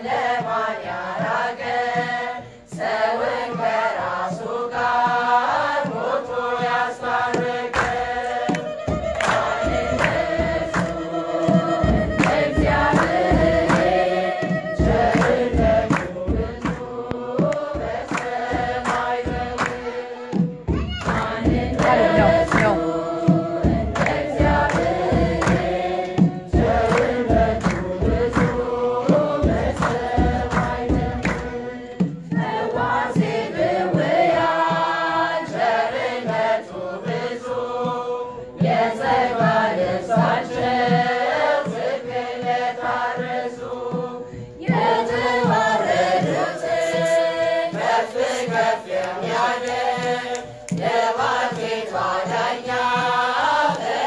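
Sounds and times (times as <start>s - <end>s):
choir singing: 0.0s - 54.0s
hand claps: 7.3s - 32.6s, 45.2s - 54.0s.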